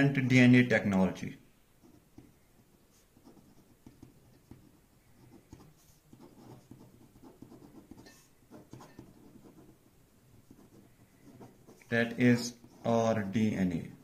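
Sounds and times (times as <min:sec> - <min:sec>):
pen scratching on paper: 0:01.8 - 0:14.0.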